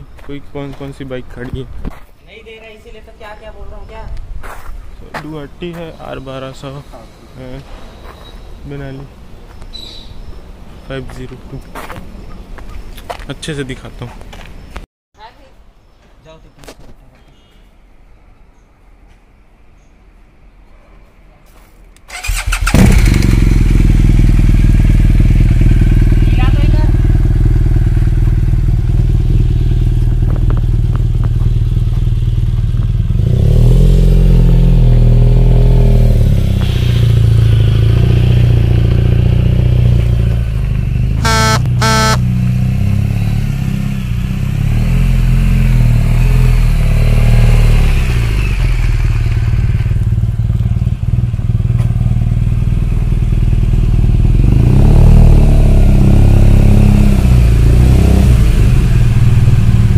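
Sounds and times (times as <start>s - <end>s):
short horn beeps: 17.2s - 17.7s, 41.2s - 42.3s
motorcycle engine idling and revving: 22.1s - 59.9s.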